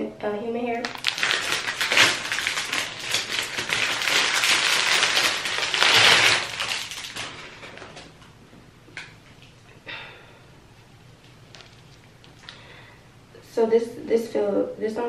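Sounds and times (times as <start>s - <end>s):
plastic bag crinkling: 0.8s - 8.3s, 11.4s - 12.6s.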